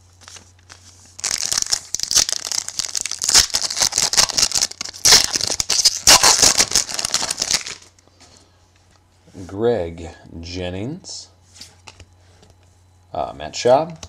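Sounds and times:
plastic wrapper crinkling: 0.2s - 8.0s.

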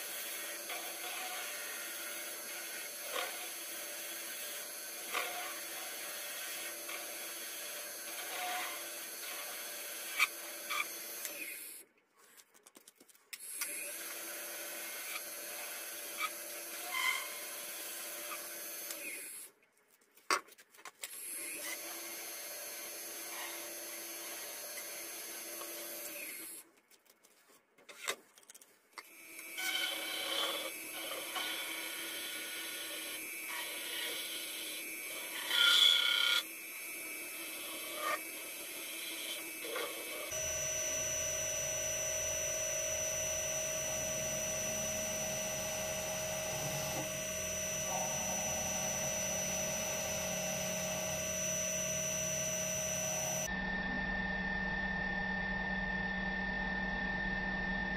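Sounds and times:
lathe whining: 0.0s - 11.5s, 29.2s - 53.5s
tool scraping metal bar: 29.6s - 36.4s.

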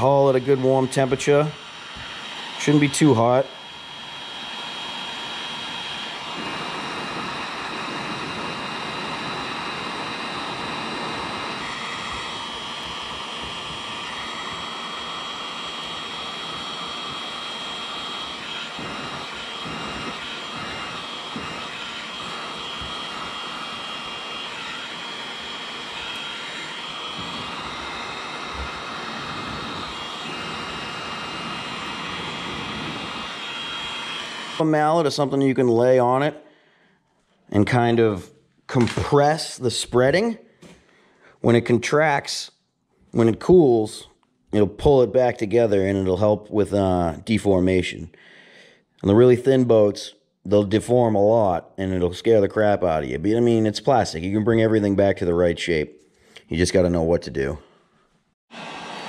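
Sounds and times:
heat gun blowing air: 0.0s - 36.2s, 58.5s - 59.0s.

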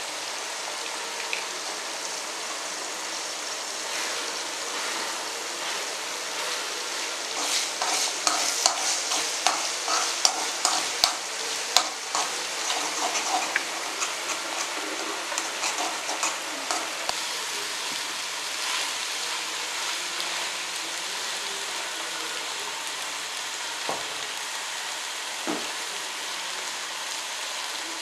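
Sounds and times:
eggs sizzling in a pan: 0.0s - 28.0s
spoon scraping a metal pan: 7.4s - 17.1s.

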